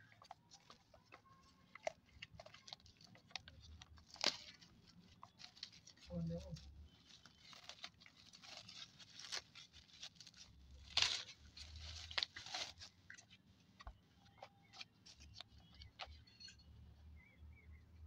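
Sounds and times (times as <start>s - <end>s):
plastic packaging crinkling: 0.0s - 13.4s.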